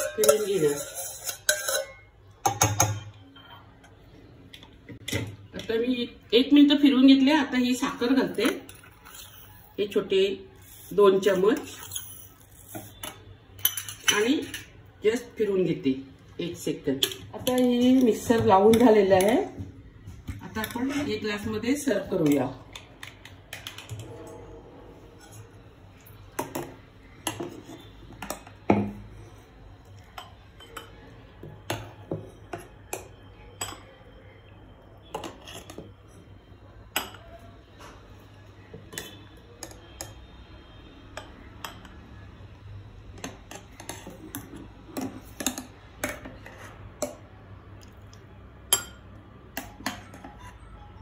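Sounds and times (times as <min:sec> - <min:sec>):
steel ladle clinking on pot and glasses: 0:00.0 - 0:03.6.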